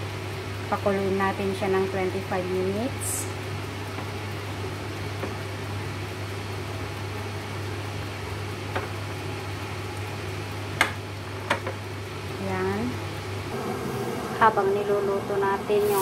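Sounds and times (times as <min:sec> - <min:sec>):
low hum: 0:13.4 - 0:16.0.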